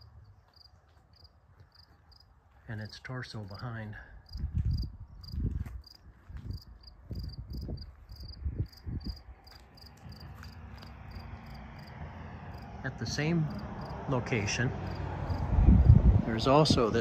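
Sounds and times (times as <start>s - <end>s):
cricket chirping: 0.0s - 2.3s, 4.2s - 12.8s, 13.4s - 14.0s, 14.7s - 16.0s.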